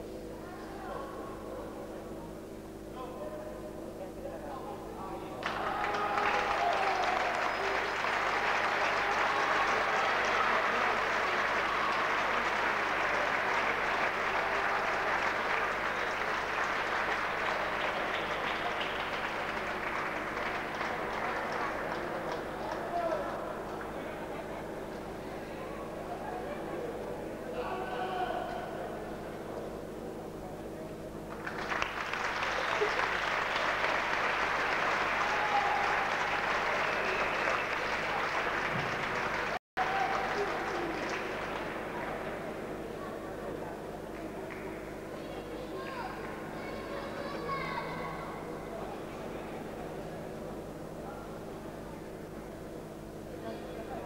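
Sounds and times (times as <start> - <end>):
crowd applauding: 5.4 - 25.1, 31.3 - 44.9.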